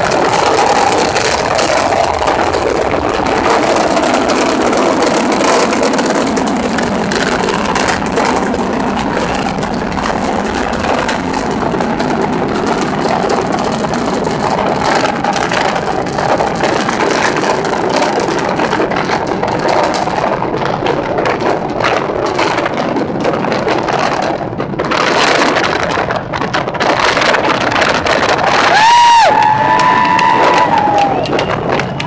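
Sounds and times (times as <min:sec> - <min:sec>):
rocket engines rumbling: 0:00.0 - 0:32.0.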